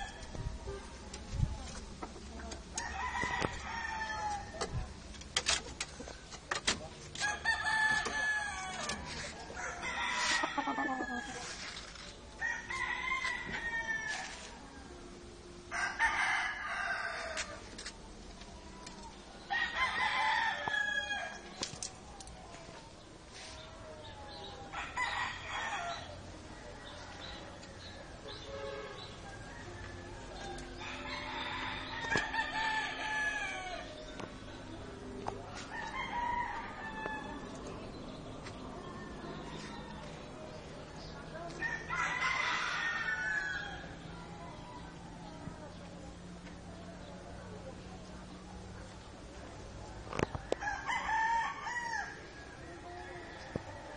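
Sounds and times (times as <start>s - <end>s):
rooster crowing: 15.7s - 17.6s, 29.2s - 33.9s, 35.7s - 37.4s, 41.6s - 43.9s.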